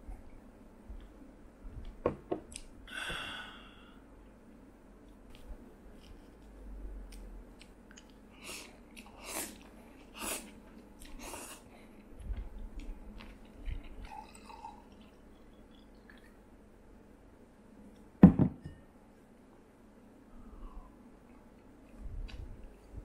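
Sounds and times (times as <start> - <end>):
chewing: 7.1 - 16.4.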